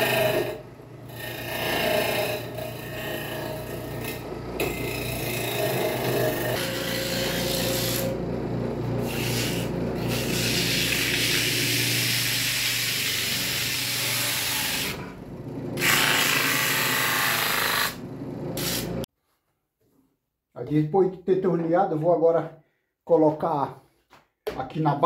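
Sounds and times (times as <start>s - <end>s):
chisel scraping spinning wood: 0.0s - 19.1s
electric motor humming: 0.0s - 19.1s
sandpaper rubbing spinning wood: 9.0s - 15.0s, 18.6s - 19.1s.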